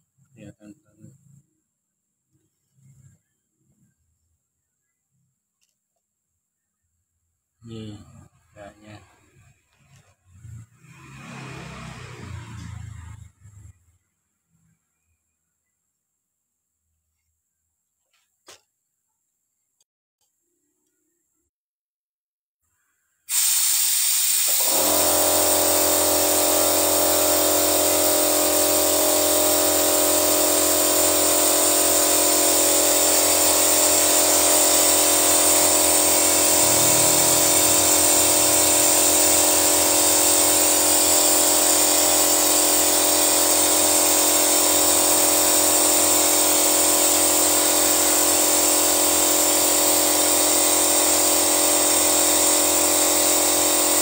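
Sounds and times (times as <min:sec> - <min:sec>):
compressed air hissing: 0:23.3 - 0:54.0.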